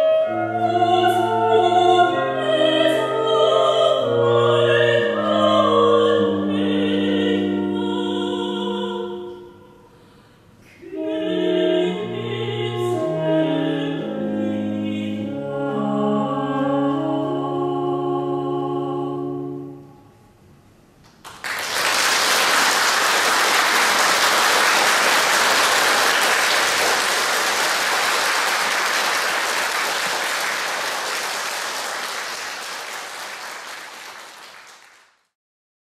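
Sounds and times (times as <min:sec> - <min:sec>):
audience applause: 0:21.2 - 0:35.2.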